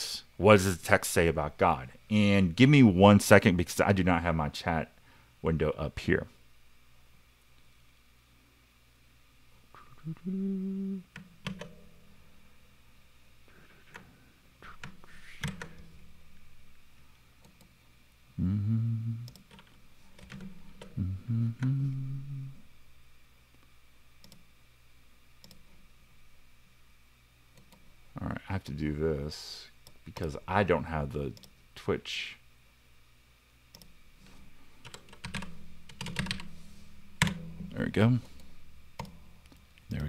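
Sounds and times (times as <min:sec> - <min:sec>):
man humming low notes: 0:09.7 - 0:11.2, 0:18.4 - 0:19.4, 0:20.9 - 0:22.7.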